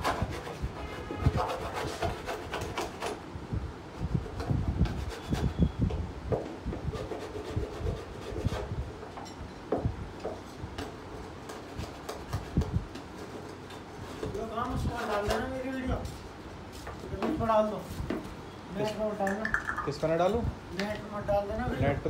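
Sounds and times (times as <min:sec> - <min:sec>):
knocks taps and rubbing: 0:19.3 - 0:20.0.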